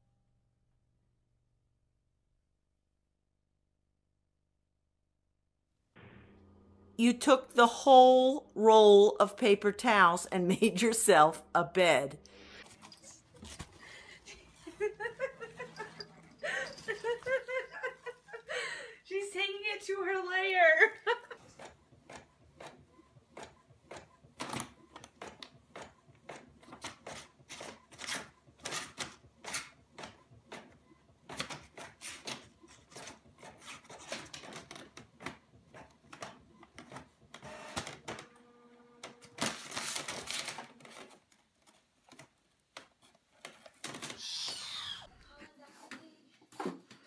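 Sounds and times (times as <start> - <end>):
inkjet printer clicking and clattering: 21.5 - 38.2.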